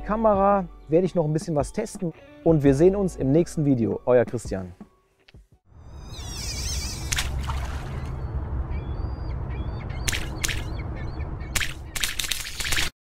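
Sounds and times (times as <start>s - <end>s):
deep steady rumble: 5.7s - 12.0s
high bird-like chirps: 5.9s - 12.1s
sharp swishes: 10.1s - 10.8s.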